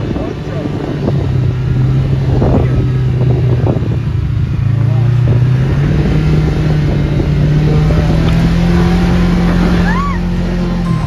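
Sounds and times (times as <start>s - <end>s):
utv engine running: 0.0s - 11.0s.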